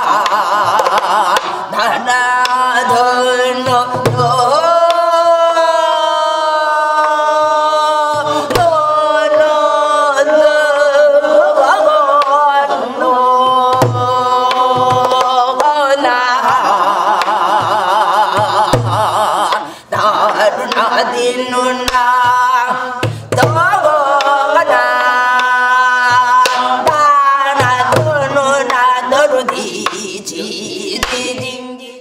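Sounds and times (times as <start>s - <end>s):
woman singing wordless melody: 0.0s - 32.0s
drum strokes: 3.6s - 5.2s, 13.4s - 15.7s, 16.4s - 20.9s, 21.8s - 30.1s.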